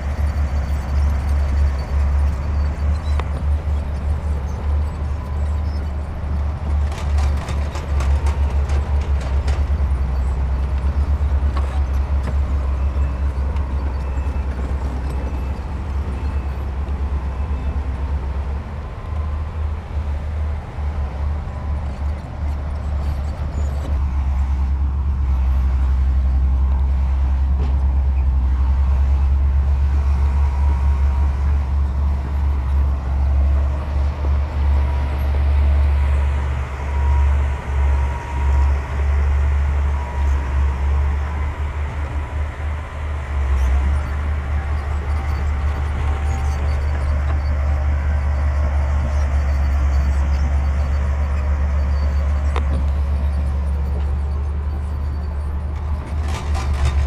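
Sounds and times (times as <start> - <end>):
heavy diesel engine drone: 0.0 - 57.0.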